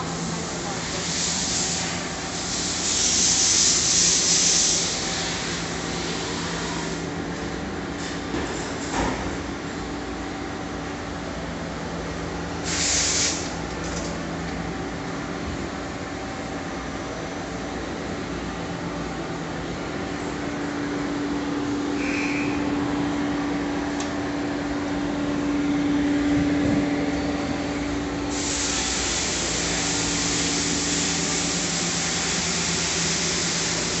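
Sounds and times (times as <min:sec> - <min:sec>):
hiss: 0:00.3 - 0:07.0, 0:12.6 - 0:13.6, 0:28.3 - 0:34.0
machinery hum with low tones: 0:13.4 - 0:34.0.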